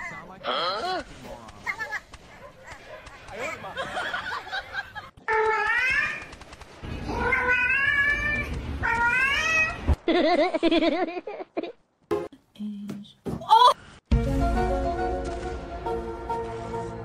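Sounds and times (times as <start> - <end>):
cat meowing: 7.1 - 9.8.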